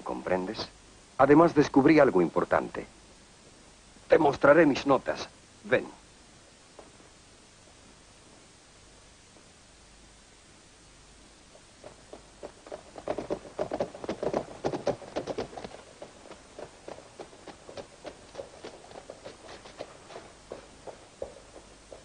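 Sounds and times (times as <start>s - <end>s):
horse hooves clopping on dirt: 11.5s - 22.0s.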